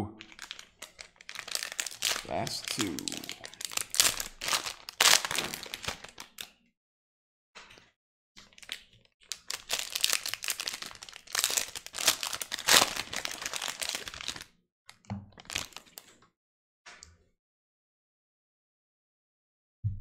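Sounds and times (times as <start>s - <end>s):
card pack wrapper crinkling: 0.2s - 6.5s, 8.4s - 14.5s, 15.4s - 16.1s.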